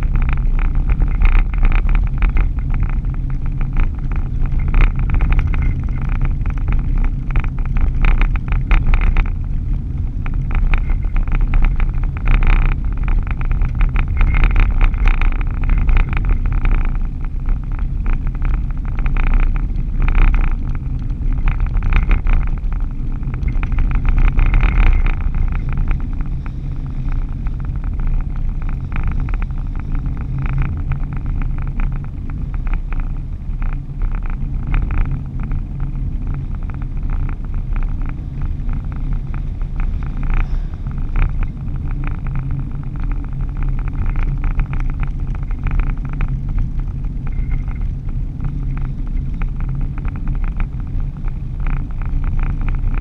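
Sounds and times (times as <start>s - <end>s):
car engine and tyre noise: 0.0s - 53.0s
fast fine rattle: 0.0s - 53.0s.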